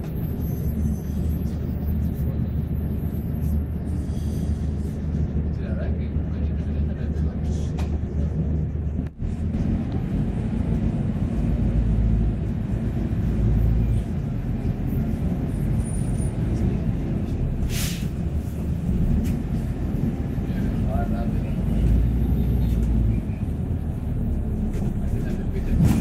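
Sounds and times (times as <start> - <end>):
bus engine and road rumble: 0.0 - 26.0
short air hiss: 17.7 - 18.1.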